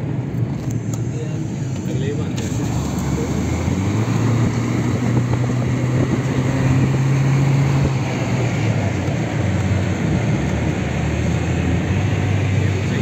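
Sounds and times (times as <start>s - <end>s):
car engine hum: 0.0s - 13.0s
road noise: 0.0s - 13.0s.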